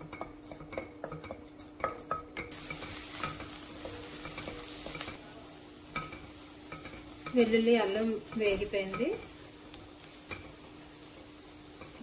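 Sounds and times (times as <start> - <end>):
garlic sizzling in hot oil: 2.1 - 12.0.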